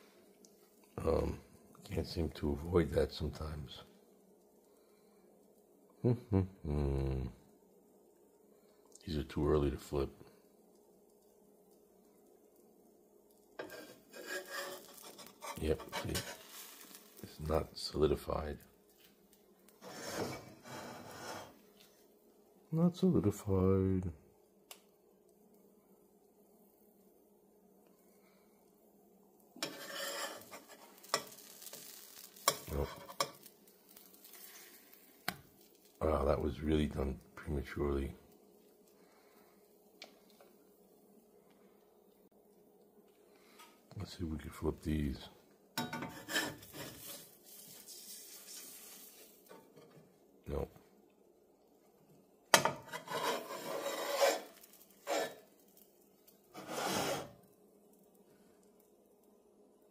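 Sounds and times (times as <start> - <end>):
batter sizzling in skillet: 9.8 - 22.6, 24.4 - 43.9, 45.5 - 59.9
metal spatula scraping: 13.6 - 17.2, 19.8 - 21.6, 29.6 - 34.8, 45.8 - 50.0, 52.6 - 55.5, 56.5 - 57.4.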